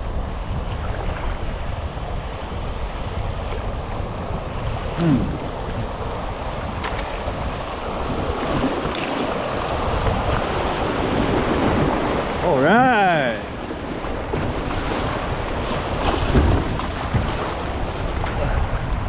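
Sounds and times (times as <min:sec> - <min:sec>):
wind noise on microphone: 0:00.0 - 0:19.0
whitewater rushing: 0:04.1 - 0:18.7.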